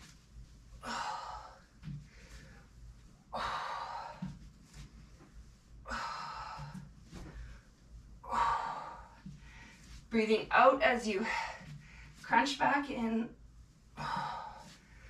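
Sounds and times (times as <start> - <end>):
woman breathing hard: 0.8 - 2.7, 3.3 - 4.4, 5.8 - 10.0, 14.0 - 15.0.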